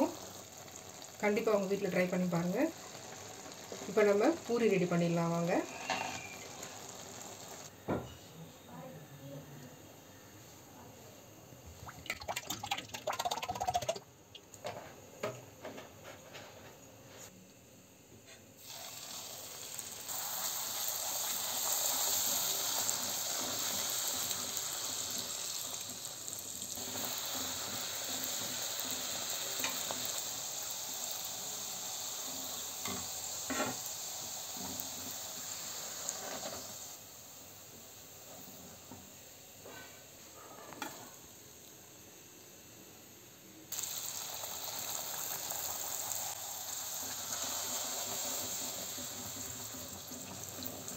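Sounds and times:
food deep-frying in oil: 0:00.0 - 0:07.7, 0:11.7 - 0:14.6, 0:18.6 - 0:38.9, 0:43.7 - 0:50.9.

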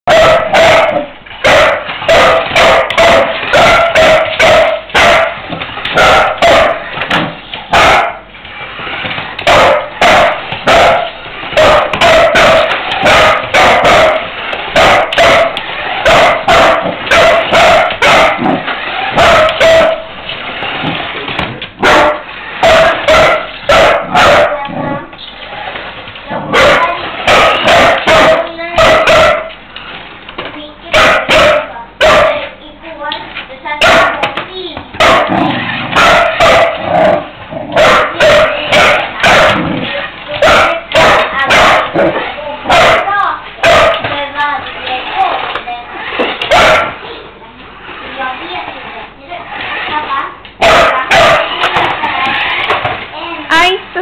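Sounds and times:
dog barking: 0:00.1 - 0:06.9, 0:07.7 - 0:08.2, 0:09.4 - 0:20.1, 0:21.8 - 0:24.7, 0:26.4 - 0:29.5, 0:30.9 - 0:32.6, 0:33.8 - 0:34.3, 0:35.0 - 0:44.2, 0:46.4 - 0:47.0, 0:50.6 - 0:51.9.

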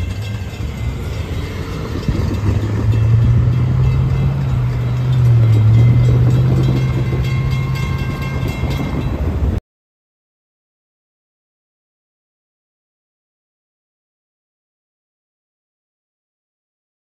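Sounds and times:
train rumbling: 0:00.0 - 0:09.6.

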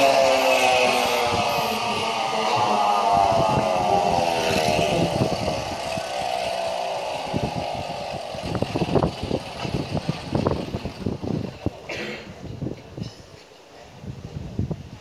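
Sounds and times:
model engine whining high: 0:00.0 - 0:11.8.

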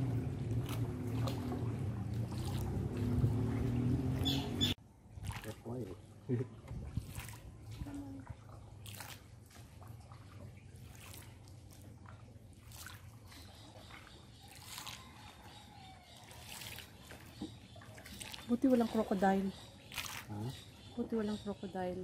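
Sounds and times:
low steady hum: 0:00.0 - 0:05.3
soft water splashes and drips: 0:00.0 - 0:21.1.

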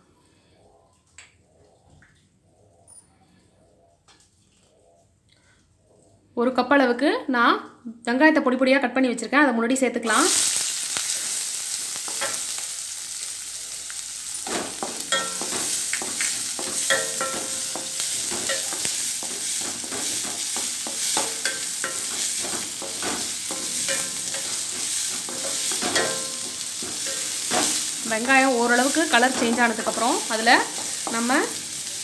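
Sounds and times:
onions sizzling in oil: 0:10.0 - 0:32.0
wooden spatula scraping metal pan: 0:14.5 - 0:31.4.

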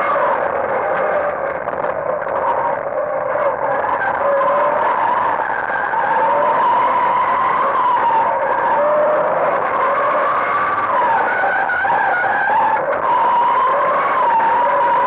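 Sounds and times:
car engine revving hard: 0:00.0 - 0:15.0.

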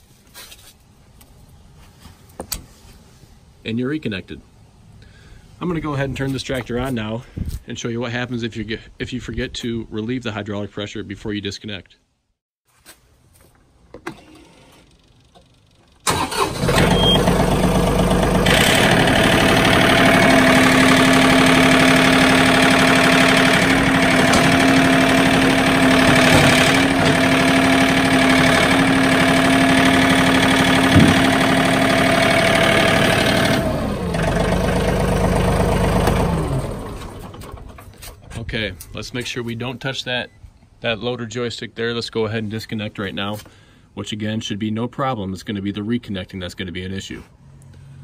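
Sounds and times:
tractor diesel engine running: 0:14.2 - 0:38.9.

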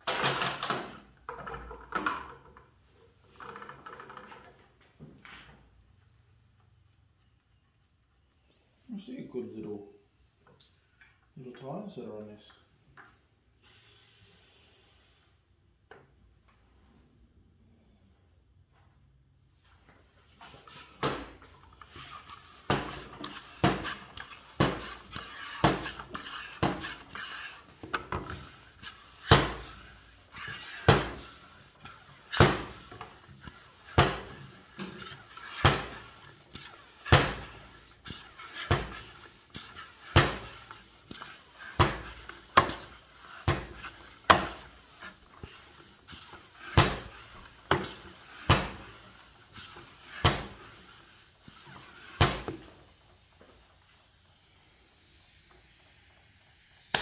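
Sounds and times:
floor pump air whooshes: 0:19.6 - 0:55.3.

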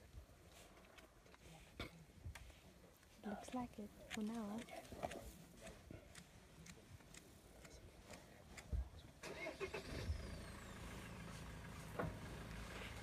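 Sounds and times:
vehicle engine starting and idling: 0:09.2 - 0:13.0.

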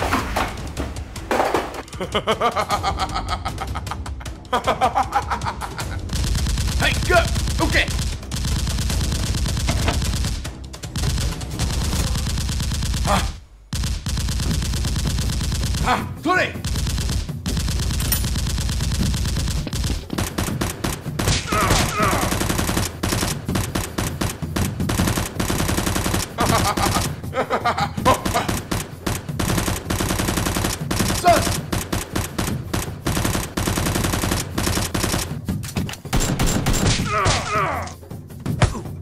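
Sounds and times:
automatic gunfire: 0:06.1 - 0:15.9, 0:16.6 - 0:27.2, 0:28.1 - 0:35.4
people shouting: 0:21.3 - 0:22.5, 0:37.0 - 0:38.0.

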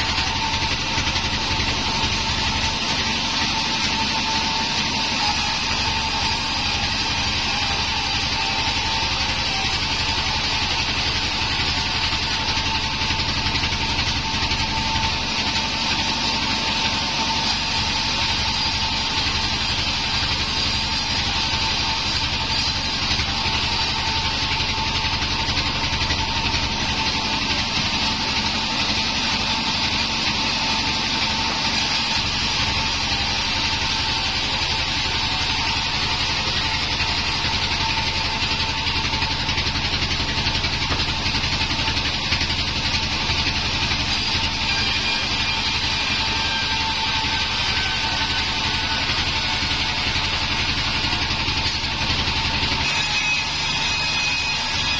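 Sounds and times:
band sawmill blade ripping wood: 0:00.0 - 0:54.9.

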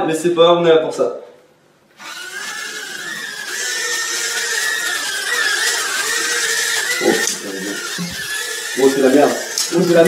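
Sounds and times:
drone motors whining: 0:02.0 - 0:10.0.

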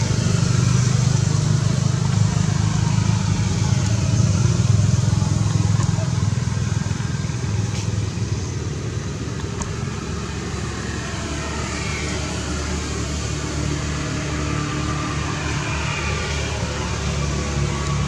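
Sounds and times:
engine rumbling: 0:00.0 - 0:18.0.

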